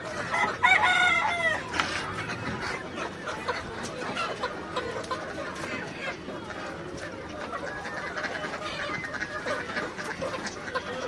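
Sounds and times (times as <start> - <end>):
chicken clucking: 0.0 - 11.0
chicken squawk: 0.0 - 11.0
shop noise: 0.8 - 6.9.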